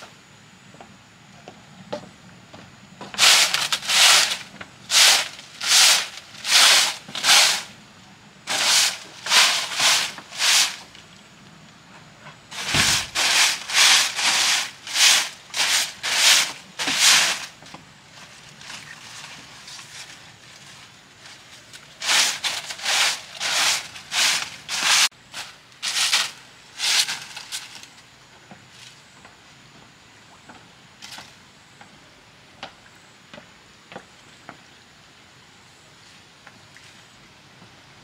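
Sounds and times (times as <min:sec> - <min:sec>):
rhythmic scraping strokes: 0:03.2 - 0:07.7, 0:08.5 - 0:10.9, 0:12.5 - 0:17.6, 0:22.0 - 0:27.8.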